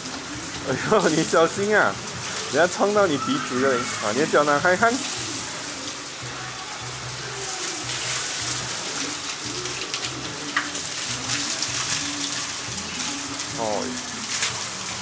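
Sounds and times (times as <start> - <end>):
rocky stream rushing: 0.6 - 5.9.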